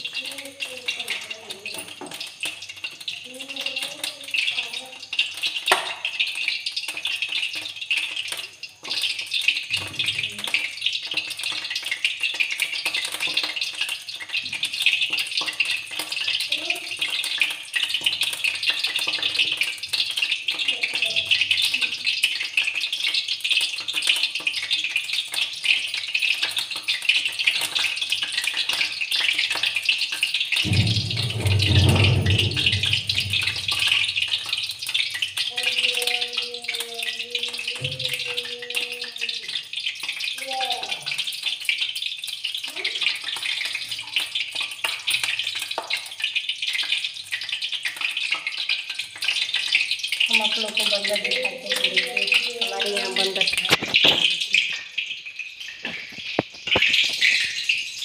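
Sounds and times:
hot oil crackling hiss: 0:00.0 - 0:58.0.

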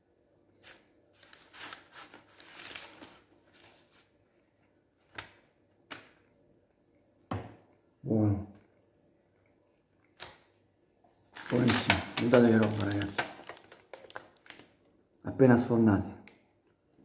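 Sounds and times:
baking paper rustling: 0:00.6 - 0:04.2, 0:11.2 - 0:14.8.

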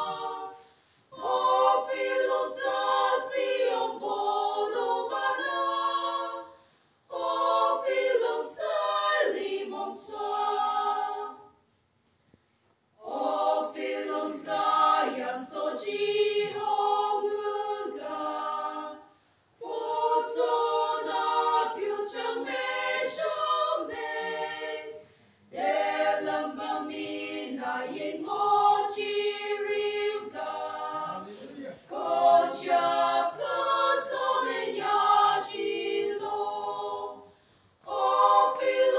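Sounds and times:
women's choir singing a hymn: 0:00.0 - 0:11.6, 0:13.0 - 0:38.9
singers breathing: 0:25.0 - 0:25.5, 0:37.2 - 0:37.8.

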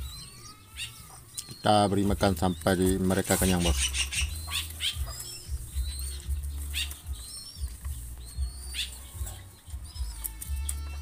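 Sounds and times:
short high bird chirps: 0:03.2 - 0:10.8.

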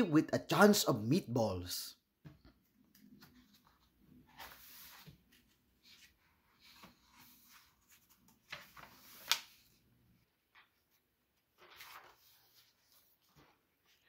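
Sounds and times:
paper rustling: 0:03.0 - 0:09.8, 0:10.5 - 0:14.0
book cover turning with snap: 0:09.2 - 0:09.6.

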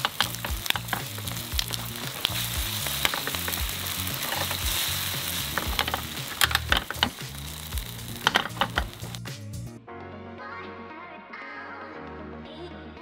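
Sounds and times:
utensil clicking against pan: 0:00.0 - 0:09.3
food sizzling in frying pan: 0:00.0 - 0:09.4
background music bass line: 0:00.0 - 0:10.3.

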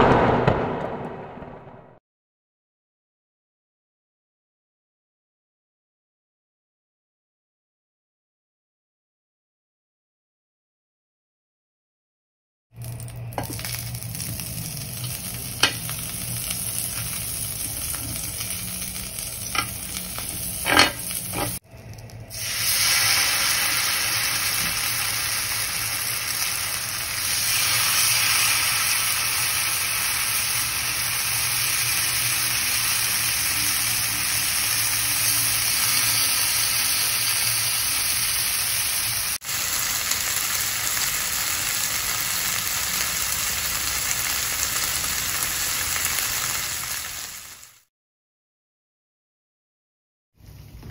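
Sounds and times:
chicken sizzling in oil: 0:12.8 - 0:47.9.

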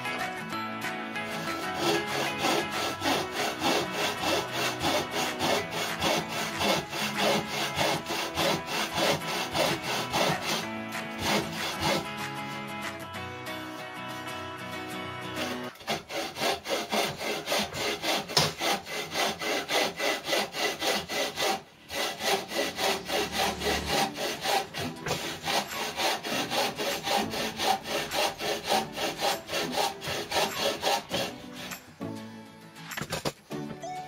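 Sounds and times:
bow saw cutting timber: 0:00.0 - 0:13.0, 0:14.9 - 0:32.0.

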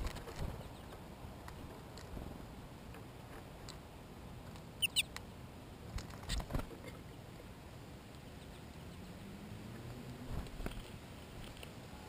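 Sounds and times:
songbird squeaky calls: 0:04.8 - 0:05.1.

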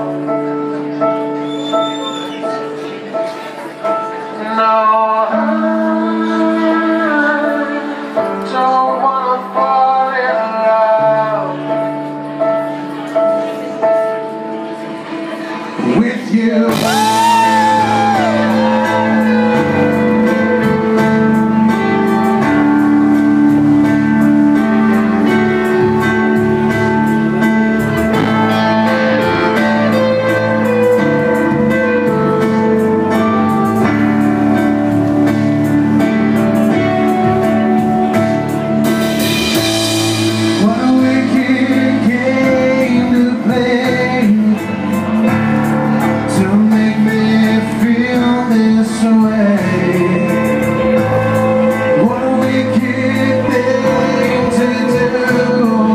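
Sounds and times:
electric guitar: 0:00.0 - 0:55.9
keyboards: 0:00.0 - 0:55.9
person singing: 0:02.3 - 0:55.9
drums: 0:15.8 - 0:55.9.

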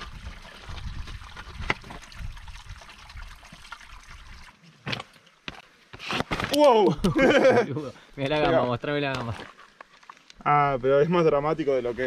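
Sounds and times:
water trickling onto rocks: 0:00.0 - 0:05.7, 0:08.3 - 0:10.8.

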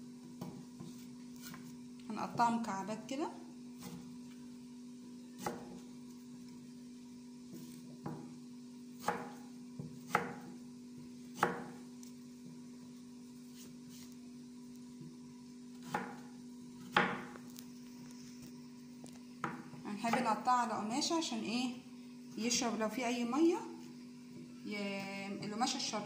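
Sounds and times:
steady low hum: 0:00.0 - 0:26.0
knife chopping on cloth: 0:05.4 - 0:05.7, 0:09.0 - 0:10.5, 0:11.3 - 0:11.8, 0:15.8 - 0:17.3.

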